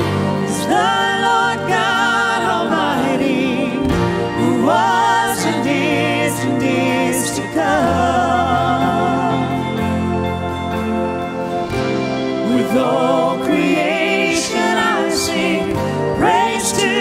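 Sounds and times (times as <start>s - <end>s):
live band playing: 0.0s - 17.0s
woman singing: 0.5s - 9.7s.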